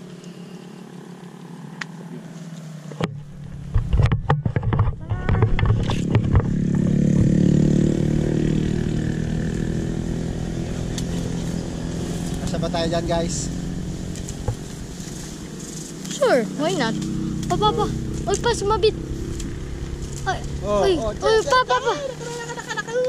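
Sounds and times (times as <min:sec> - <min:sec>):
motorcycle engine passing: 0:00.0 - 0:23.0
crackles and snaps of brush: 0:14.1 - 0:16.2, 0:16.9 - 0:20.6.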